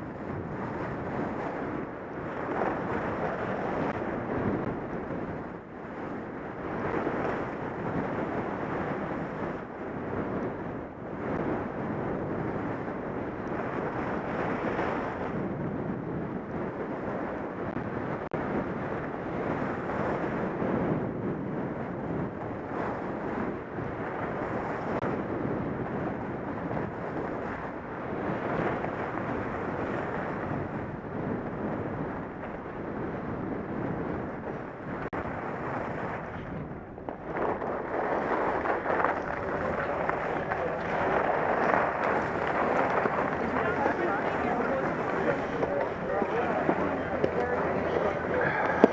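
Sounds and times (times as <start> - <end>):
wind buffeting microphone: 0.0 - 48.9
skis sliding on packed snow: 37.2 - 48.9.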